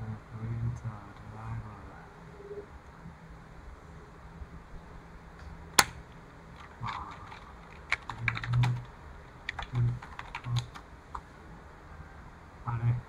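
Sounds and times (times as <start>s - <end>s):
computer keyboard typing: 6.6s - 8.9s, 9.5s - 10.8s.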